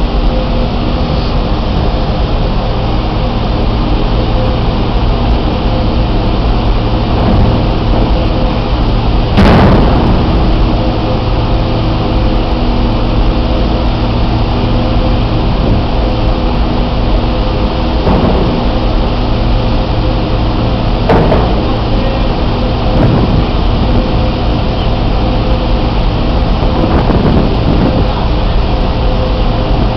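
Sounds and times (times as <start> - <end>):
ferry machinery humming: 0.0 - 29.9
loud bang: 6.9 - 13.2, 17.8 - 24.1.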